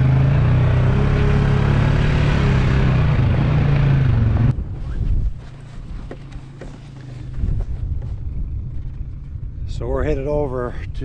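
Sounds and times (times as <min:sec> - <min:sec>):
quad engine running: 0:00.0 - 0:04.8.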